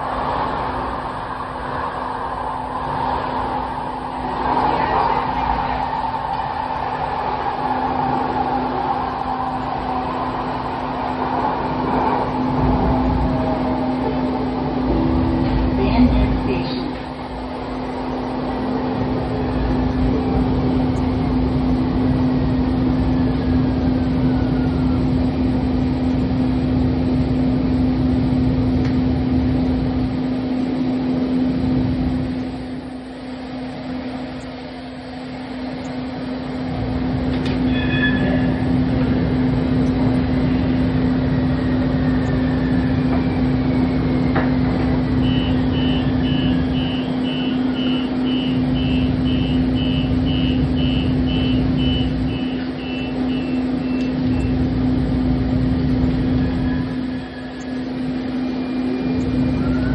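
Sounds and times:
faint whine falling in pitch: 0.0s - 59.9s
light rail vehicle hum and rumble: 0.0s - 59.9s
high beeps: 45.2s - 54.5s.

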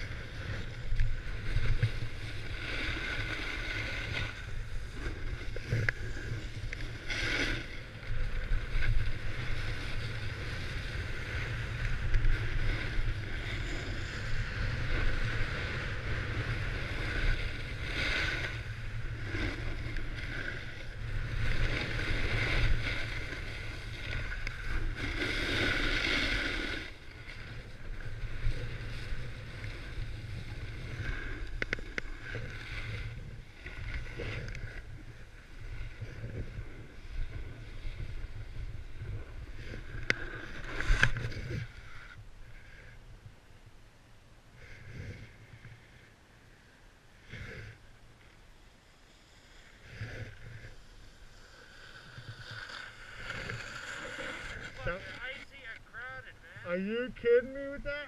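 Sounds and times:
ski edges scraping on ice: 50.7s - 55.5s.

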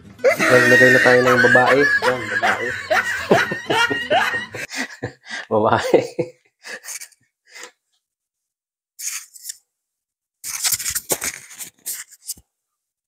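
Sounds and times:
scratchy handling noise: 9.0s - 9.6s, 10.4s - 12.4s
scrapes and clicks: 10.4s - 12.4s.

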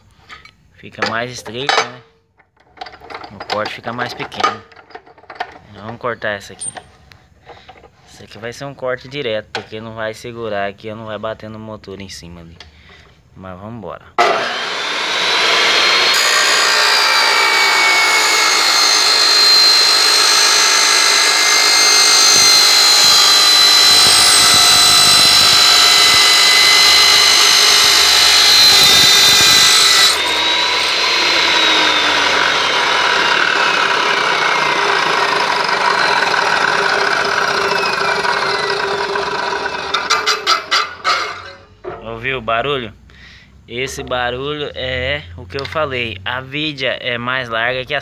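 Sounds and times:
chop saw cutting metal screech: 6.2s - 7.0s, 14.2s - 41.9s
saw blade spinning down whine: 14.2s - 41.7s.

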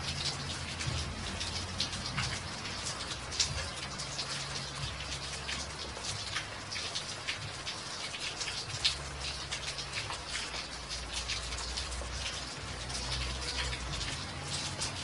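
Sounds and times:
rain falling on wet walkway: 0.0s - 15.0s
raindrops splatting in puddles: 0.0s - 15.0s.

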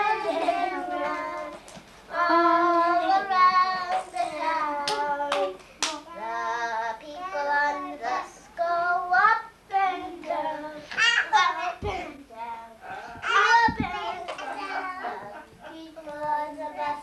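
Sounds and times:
children singing: 0.0s - 12.0s
sharp claps: 3.9s - 6.0s.

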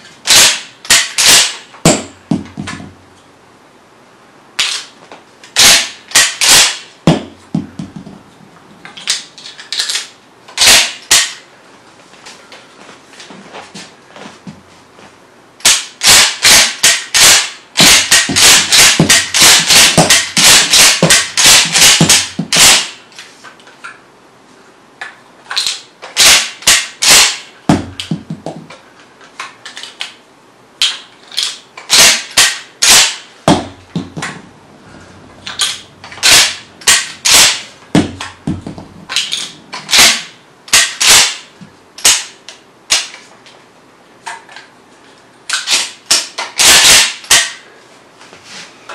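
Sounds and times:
shotgun slide clacking: 35.5s - 38.4s.

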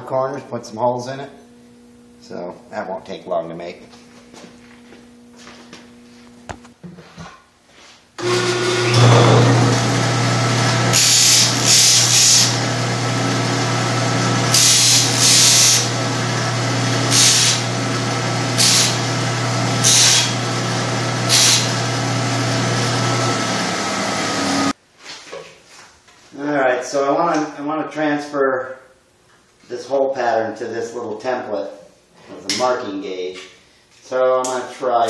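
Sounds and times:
disc sander motor hum: 8.2s - 24.7s.

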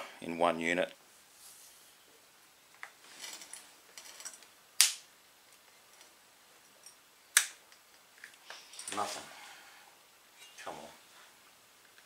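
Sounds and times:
electric sparks snapping: 4.8s - 5.1s, 7.3s - 7.6s.

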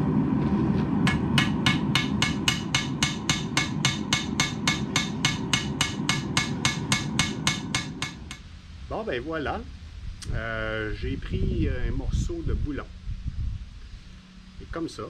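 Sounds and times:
low rumble: 0.0s - 15.0s
hammer ringing on anvil: 1.1s - 8.4s.

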